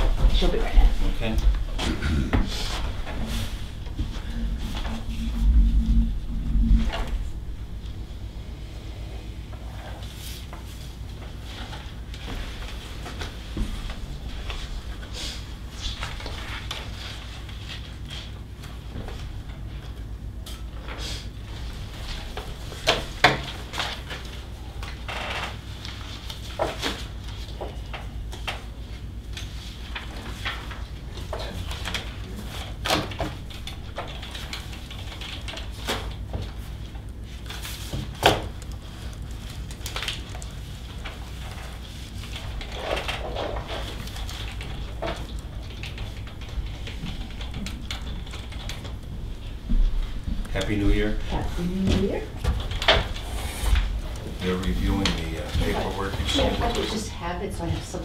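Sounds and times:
low room hum: 0:00.0 - 0:58.0
paper rustling and pages turning: 0:21.9 - 0:49.6.

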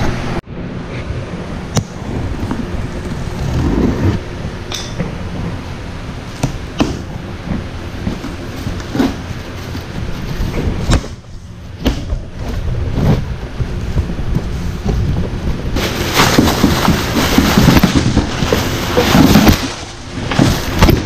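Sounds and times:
plastic wrapping crinkling: 0:15.8 - 0:21.0.

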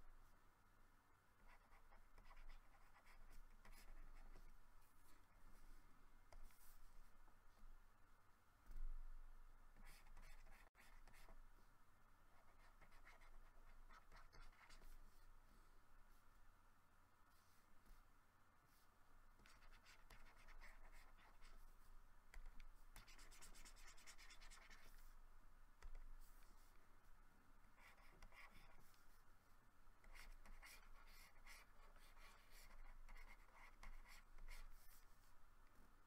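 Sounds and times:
stylus scratching on graphics tablet: 0:23.0 - 0:25.0.

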